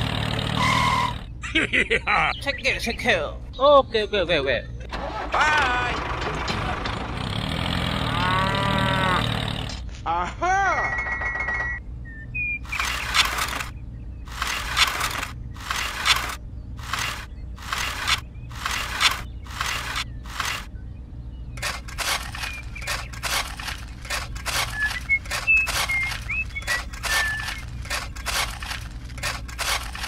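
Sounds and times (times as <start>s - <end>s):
metal shovel scraping dirt: 12.7s - 13.7s, 14.3s - 20.7s, 21.6s - 30.0s.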